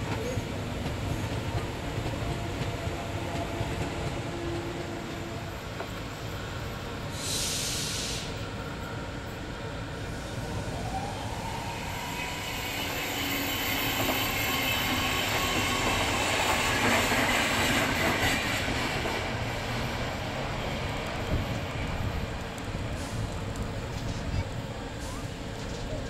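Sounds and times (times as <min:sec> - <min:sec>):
train wheels rumbling: 0:00.0 - 0:26.0
high wheel squeal: 0:11.6 - 0:16.5.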